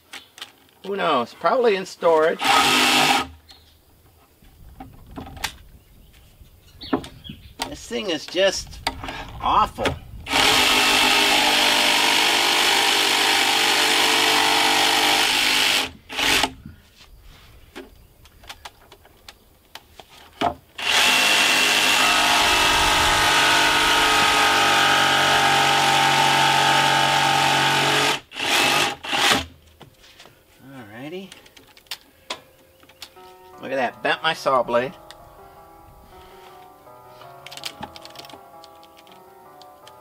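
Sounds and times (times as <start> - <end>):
jigsaw cutting wood: 2.4 - 3.4, 10.3 - 16.6, 20.8 - 29.5.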